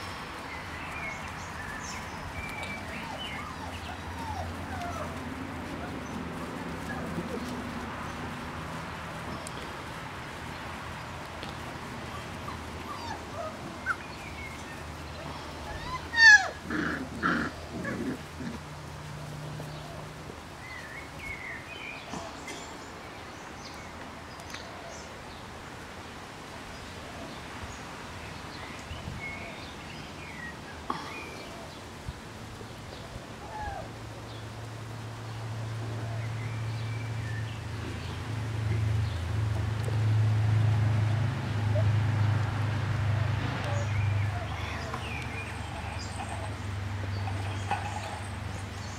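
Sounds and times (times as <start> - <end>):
puppies yelping and squealing: 2.6 - 7.6, 12.0 - 18.6, 43.6 - 48.9.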